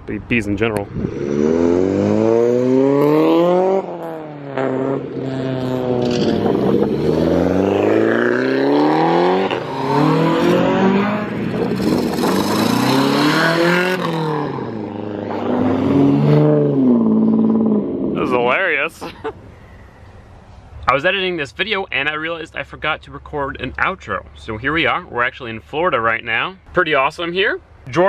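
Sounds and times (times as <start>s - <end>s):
cars accelerating hard past: 0.9s - 18.4s.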